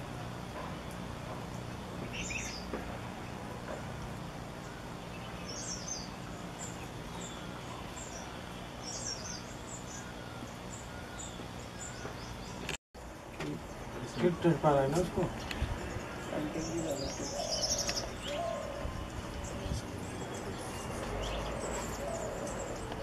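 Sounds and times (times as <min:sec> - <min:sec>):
high-pitched bird calls: 0:15.4 - 0:23.0.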